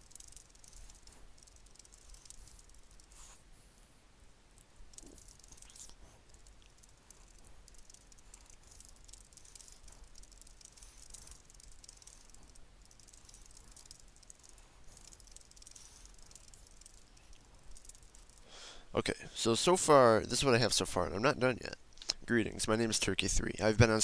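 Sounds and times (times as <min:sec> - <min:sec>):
keyboard typing: 0:00.0 - 0:03.3, 0:04.6 - 0:18.5.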